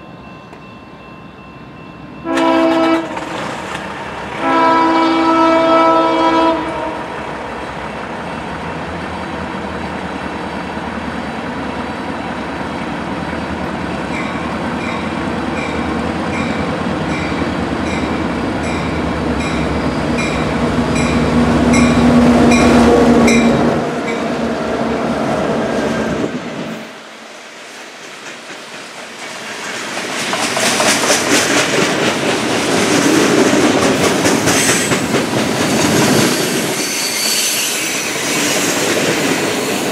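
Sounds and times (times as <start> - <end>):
crossing bell ringing: 0.0 - 3.4, 14.0 - 24.4
diesel locomotives passing: 0.0 - 39.9
train cars clickety-clack: 2.2 - 7.9, 12.8 - 26.8, 27.6 - 39.9
wheel squeal: 35.7 - 38.7.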